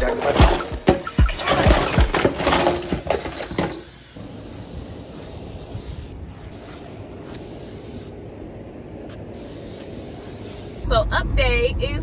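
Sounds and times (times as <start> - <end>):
plastic toys clattering in a sink: 0.0 - 3.8.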